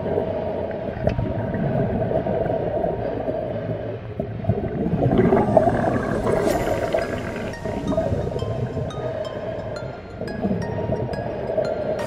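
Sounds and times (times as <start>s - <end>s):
muffled underwater rumble: 0.0s - 11.7s.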